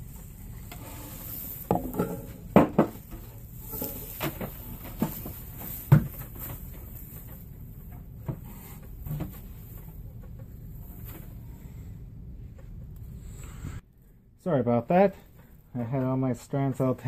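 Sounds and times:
cord rustling: 3.0s - 11.4s.

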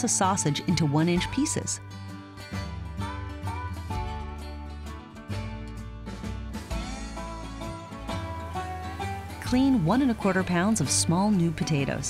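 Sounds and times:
plucked strings country tune: 0.0s - 12.0s.

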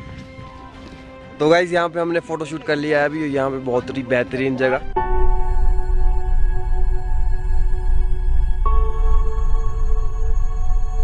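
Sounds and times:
slow ambient chords: 4.7s - 11.0s.

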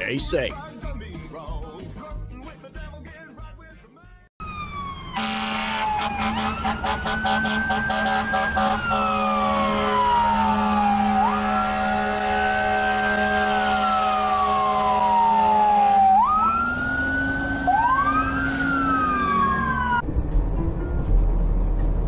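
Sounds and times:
electronic ambulance siren wailing: 4.4s - 20.0s.

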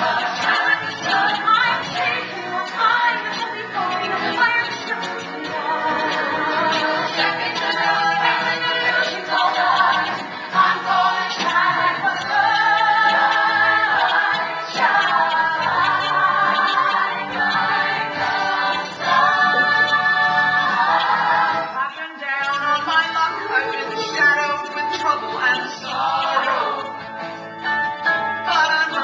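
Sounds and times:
women singing together on stage: 0.0s - 21.8s, 25.7s - 26.9s.

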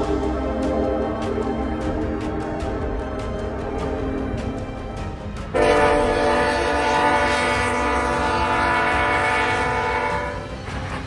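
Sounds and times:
train horn blast: 5.5s - 11.0s.

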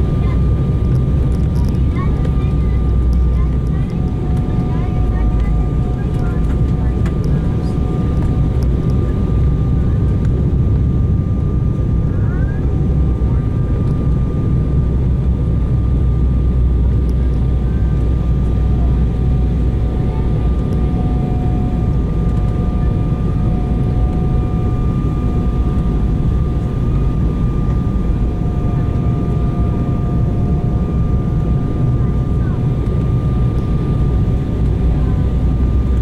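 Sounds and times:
jet airliner cabin roar: 0.0s - 36.0s.

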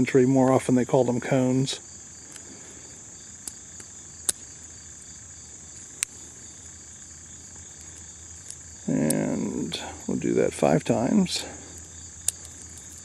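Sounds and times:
high-pitched insect drone: 1.4s - 13.0s
revolver cylinder clicking: 12.2s - 13.0s.

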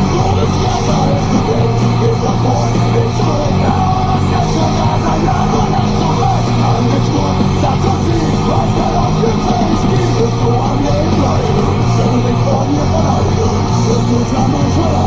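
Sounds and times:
rock music with singing: 0.0s - 15.0s
tractor engine drone: 0.0s - 15.0s.

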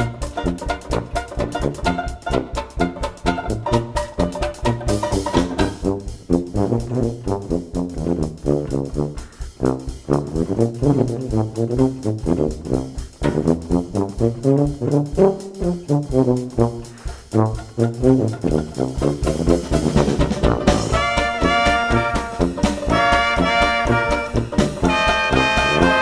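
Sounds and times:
brass music over a steady beat: 0.0s - 26.0s.

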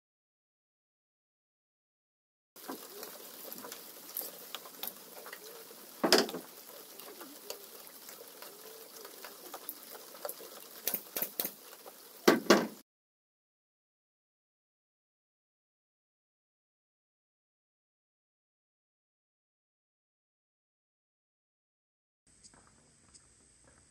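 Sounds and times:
light rain pattering: 2.6s - 12.8s
sharp knocks: 12.3s - 12.8s.

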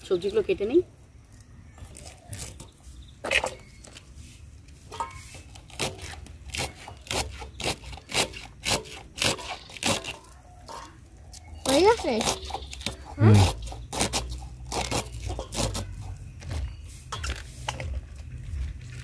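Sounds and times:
knife shredding cabbage: 5.2s - 10.4s, 11.6s - 16.2s.

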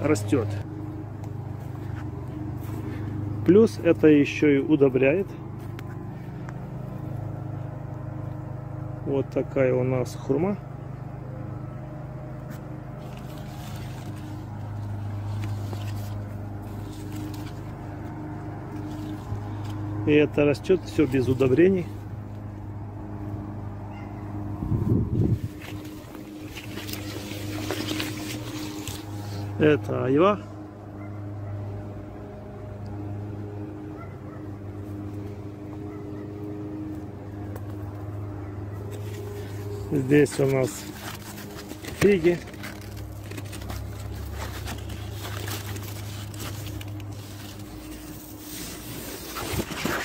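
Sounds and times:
low machine hum: 0.0s - 50.0s
motor droning: 0.0s - 50.0s
light rustling: 12.4s - 20.0s, 25.3s - 29.6s, 34.9s - 50.0s.

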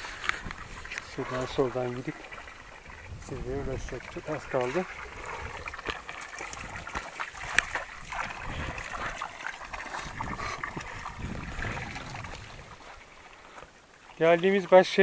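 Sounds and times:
water running into stone trough: 0.0s - 15.0s
hands splashing water: 3.7s - 15.0s.

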